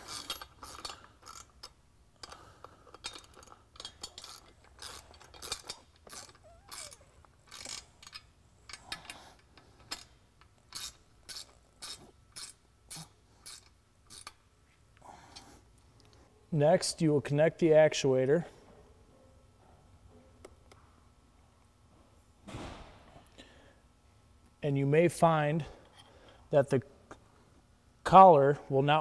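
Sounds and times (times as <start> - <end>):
ratchet wrench clicking: 0.0 - 14.4.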